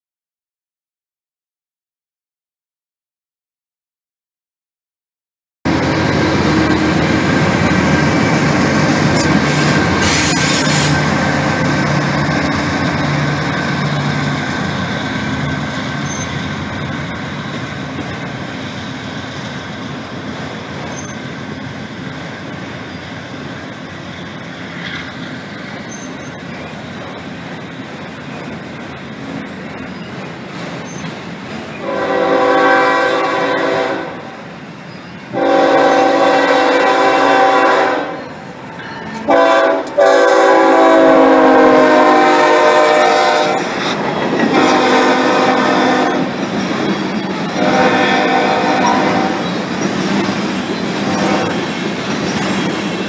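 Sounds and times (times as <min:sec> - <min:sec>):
freight train rolling past: 0:05.7 - 0:53.0
locomotive horn blasts: 0:31.8 - 0:34.4, 0:35.4 - 0:38.2, 0:39.2 - 0:43.7, 0:44.5 - 0:46.3, 0:47.6 - 0:49.4.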